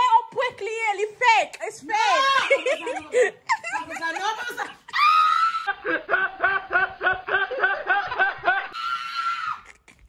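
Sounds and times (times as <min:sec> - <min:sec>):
person laughing: 0:02.4 - 0:05.0, 0:05.7 - 0:08.8.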